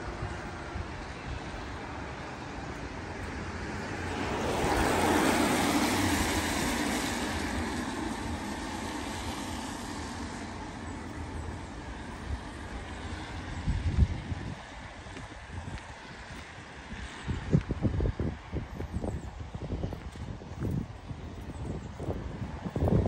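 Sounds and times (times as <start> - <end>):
distant traffic hum: 0.0 - 23.0
car tyres hissing on wet road: 0.1 - 13.9.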